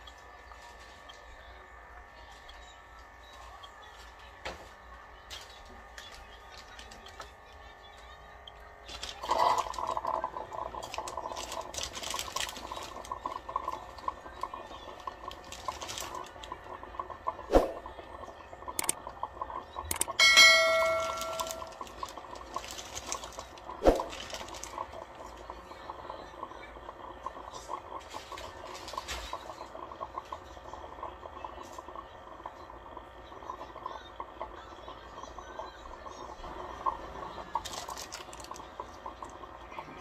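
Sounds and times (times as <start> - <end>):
coffee maker gurgling and sputtering: 0.0 - 40.0
coffee maker pump hum: 0.0 - 40.0
sharp clicks: 18.8 - 19.0, 19.8 - 20.2.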